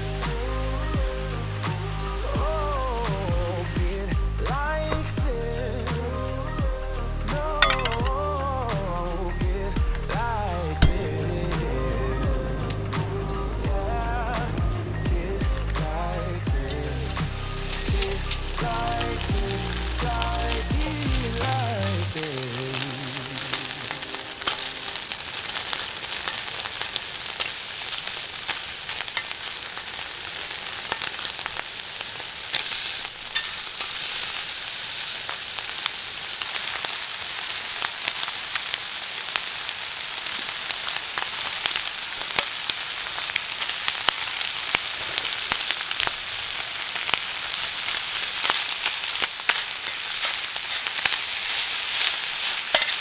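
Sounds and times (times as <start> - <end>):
meat sizzling in a pan: 7.4 - 8.4, 16.6 - 53.0.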